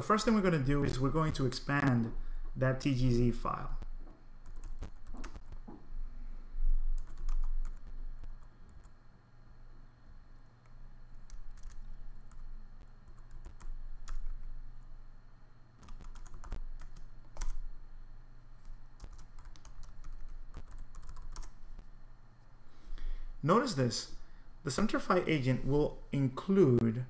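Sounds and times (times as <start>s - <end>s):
faint steady low hum: 0.0s - 27.0s
computer keyboard typing: 4.4s - 5.6s, 7.0s - 8.9s, 11.2s - 12.4s, 13.1s - 14.5s, 15.8s - 17.7s, 18.6s - 21.6s.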